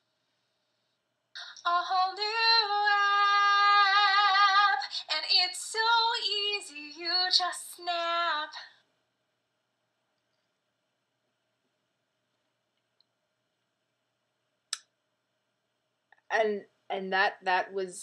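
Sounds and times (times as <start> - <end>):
woman singing a cappella: 1.4 - 8.8.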